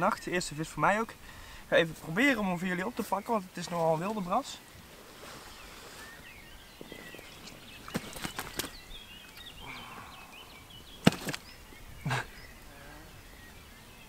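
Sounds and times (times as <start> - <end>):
birds chirping: 0.0 - 14.0
fish slapping and knocking: 6.8 - 9.6, 11.0 - 11.6.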